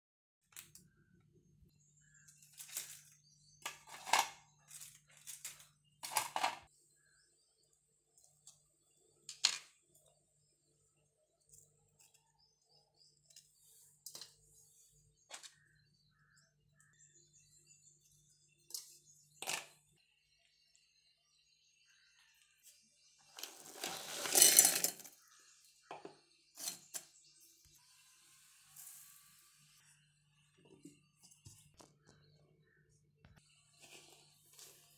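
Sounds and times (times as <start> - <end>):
biscuit pieces clattering into jar: 2.4 - 6.7, 19.4 - 19.8, 23.3 - 25.4.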